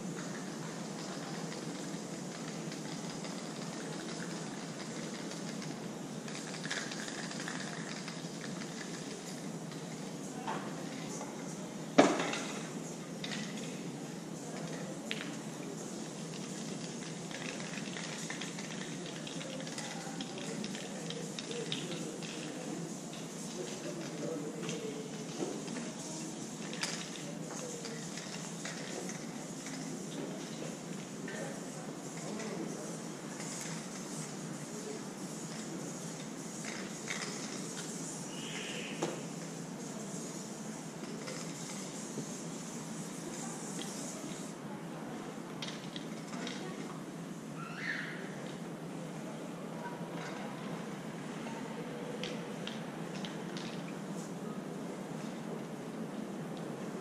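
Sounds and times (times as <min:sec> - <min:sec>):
spray paint cans hissing: 0:00.0 - 0:44.6, 0:45.4 - 0:49.2, 0:52.1 - 0:57.0
street background noise: 0:00.0 - 0:57.0.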